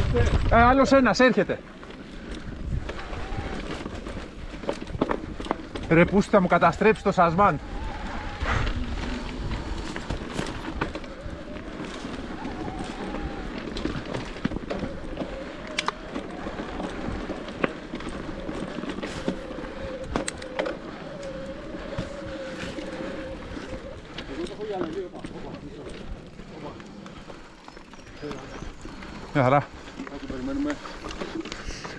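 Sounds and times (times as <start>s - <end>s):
bike tyre trail noise: 0.0s - 31.9s
chain and frame rattling: 9.5s - 31.6s.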